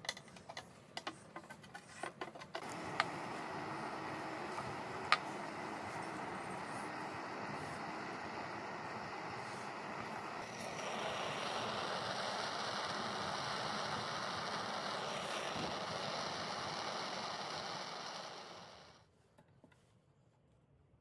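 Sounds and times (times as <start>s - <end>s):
gas torch hissing: 2.6s - 19.1s.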